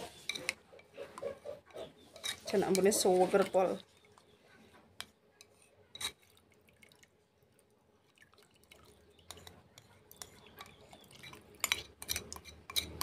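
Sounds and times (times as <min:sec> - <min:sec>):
spoon scraping and tapping bowl: 0:00.0 - 0:03.7, 0:05.0 - 0:06.2, 0:09.2 - 0:13.0
liquid drips and splashes: 0:06.0 - 0:13.0.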